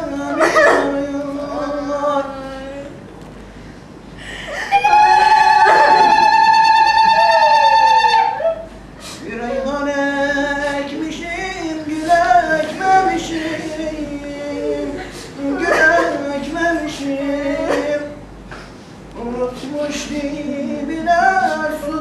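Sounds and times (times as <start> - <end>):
person singing: 4.5 - 11.0, 11.8 - 18.1, 19.2 - 22.0.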